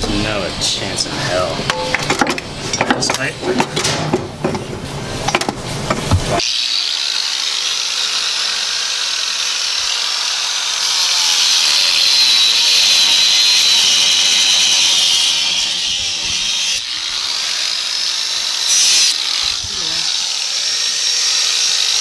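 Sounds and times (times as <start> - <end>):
grinder cutting sheet metal: 6.4 - 22.0.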